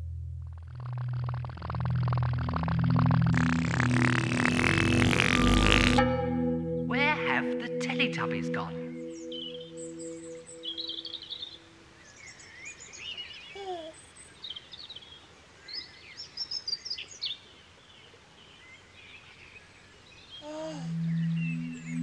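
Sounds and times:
sustained low music notes: 0.0s - 12.0s, 20.6s - 22.0s
birds chirping and twittering: 6.0s - 22.0s.

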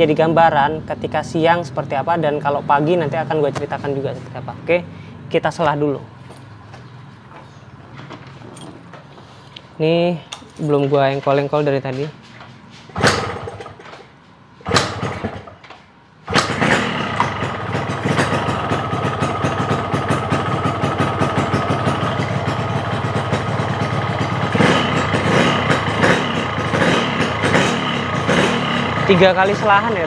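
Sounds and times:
motorcycle engine kick-started: 13.0s - 14.0s, 14.6s - 15.6s, 16.3s - 30.0s
motorcycle engine idling: 16.5s - 30.0s.

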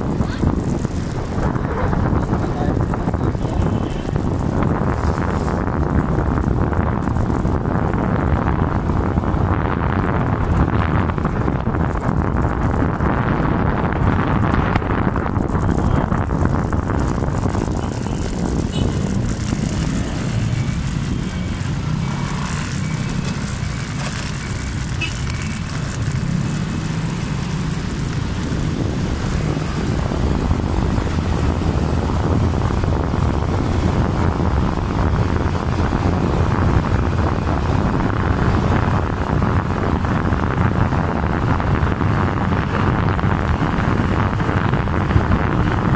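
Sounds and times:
engine and road rumble: 0.0s - 45.9s
wind rushing over microphone: 0.0s - 45.9s.

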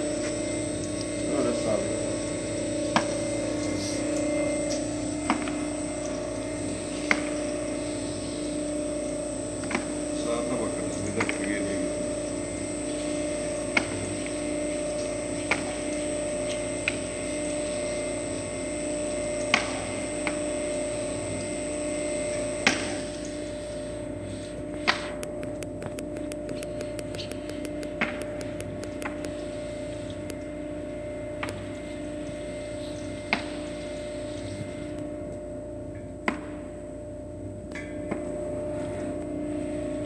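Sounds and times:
oil press humming: 24.7s - 30.6s.

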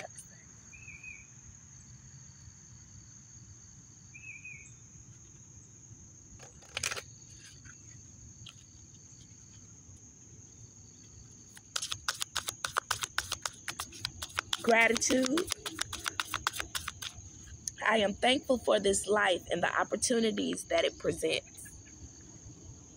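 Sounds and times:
insects droning: 0.0s - 22.9s
deck of cards shuffling: 6.4s - 7.8s, 11.4s - 17.2s.

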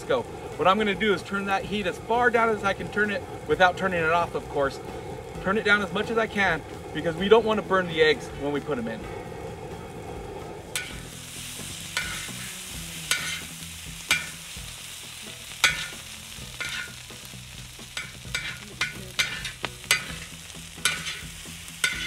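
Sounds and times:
food sizzling: 0.0s - 22.0s
metal spatula scraping on steel: 10.7s - 22.0s.

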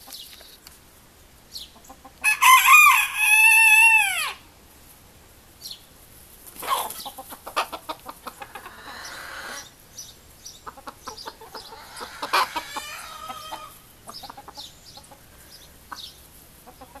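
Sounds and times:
chickens clucking: 1.4s - 4.4s, 5.7s - 17.0s
drawn-out chicken call: 1.7s - 4.5s, 6.6s - 9.8s, 10.6s - 17.0s.

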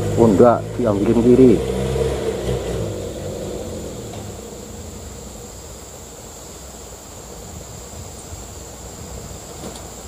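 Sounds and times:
diesel engine idling: 0.0s - 9.0s
insects droning: 0.0s - 10.0s.

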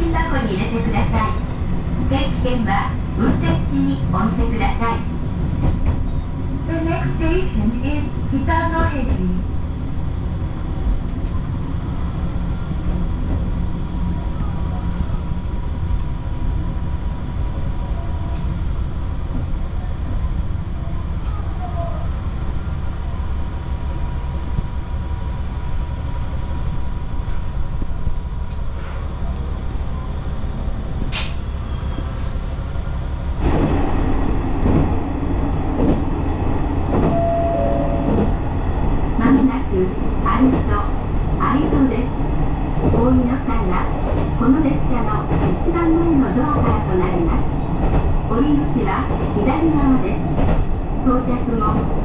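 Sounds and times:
wheels rumbling on rails: 0.0s - 52.0s
sharp click: 31.1s - 31.4s.

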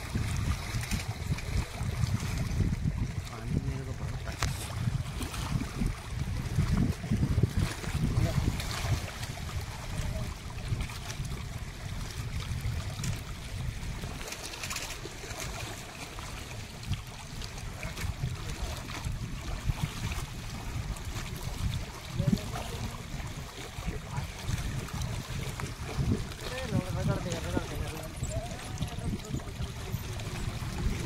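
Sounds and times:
water lapping at rocks: 0.0s - 31.0s
wind on microphone: 0.0s - 31.0s.

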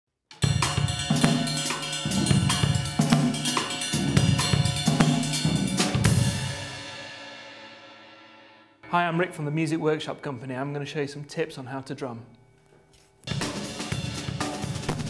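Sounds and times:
drum kit played with sticks: 0.3s - 9.5s, 13.3s - 15.0s
cymbal hit ringing: 0.4s - 11.1s.

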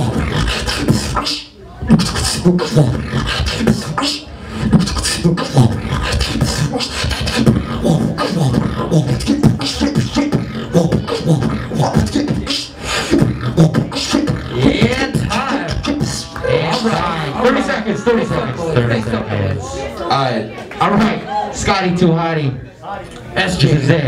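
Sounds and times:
person beatboxing: 0.0s - 19.1s.

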